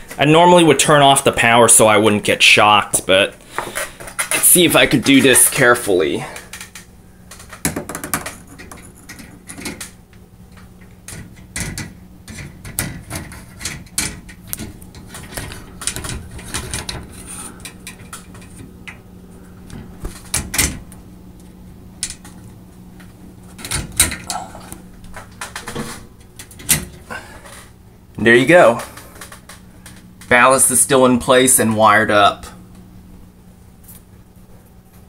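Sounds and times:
steady low hum: 0.0s - 35.0s
clicks and knocks of plastic: 25.0s - 27.7s.

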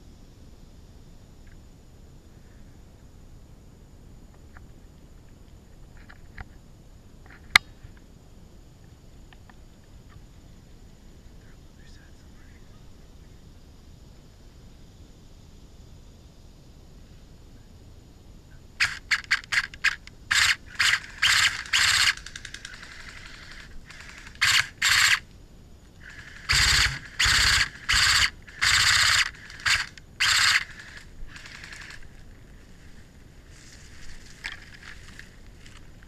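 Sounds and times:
airsoft rifle full-auto bursts: 18.8s - 25.2s, 26.0s - 32.2s.

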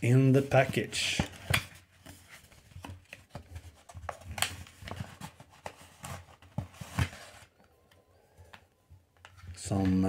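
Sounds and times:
paper rustling and scraping: 0.4s - 7.5s.

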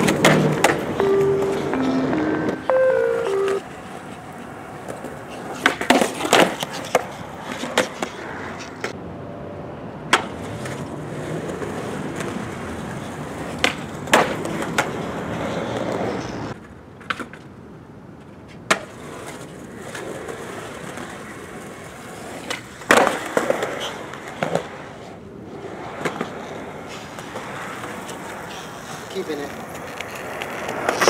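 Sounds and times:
skateboard clacks: 0.0s - 2.3s, 3.0s - 9.0s, 10.1s - 17.6s, 18.2s - 31.0s
skateboard wheels rolling on concrete: 0.0s - 31.0s.

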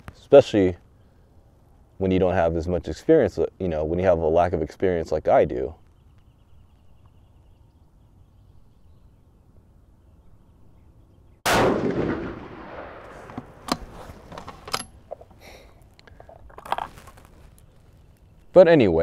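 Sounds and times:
rifle shot echoing: 11.4s - 13.9s.

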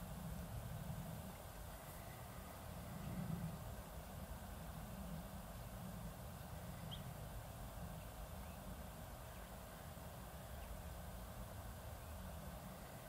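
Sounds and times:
low outdoor rumble: 0.0s - 13.0s
faint bird chirps: 6.6s - 7.2s.

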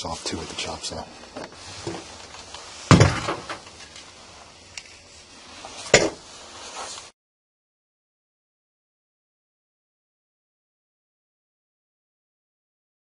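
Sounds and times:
sharp knocks on workbench: 2.9s - 3.5s.

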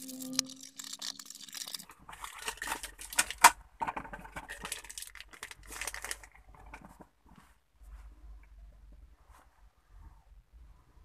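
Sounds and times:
plastic packaging crinkling: 0.0s - 6.9s.

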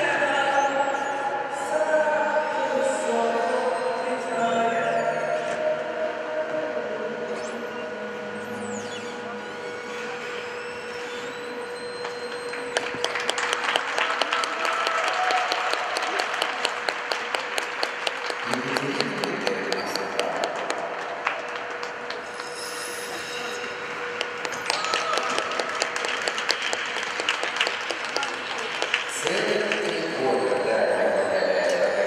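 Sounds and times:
audience applause: 12.5s - 22.4s, 24.2s - 30.4s.

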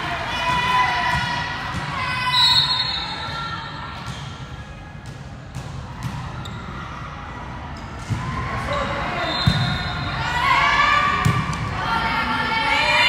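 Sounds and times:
referee's whistle: 2.2s - 3.5s, 9.2s - 10.2s.

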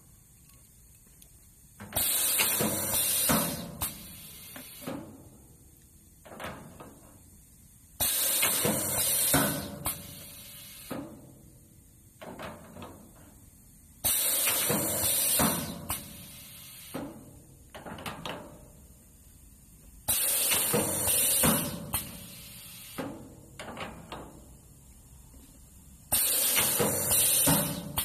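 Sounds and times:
compressed air hissing: 2.0s - 5.3s, 8.0s - 11.2s, 14.0s - 17.4s, 20.1s - 23.1s, 26.1s - 28.0s.

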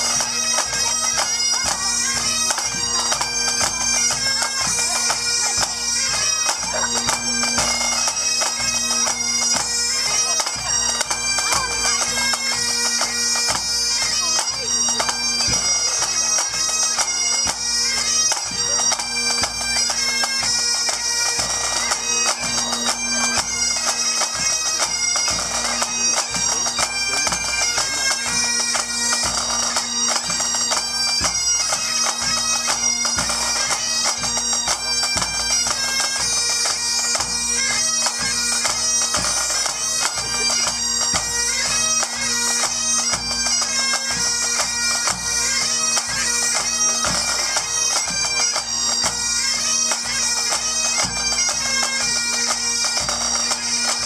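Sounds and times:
bagpipes playing melody: 0.0s - 54.0s.

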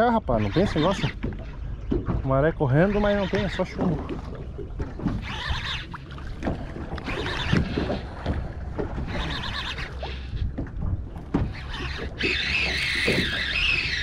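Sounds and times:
water slapping against boat hull: 0.0s - 14.0s.

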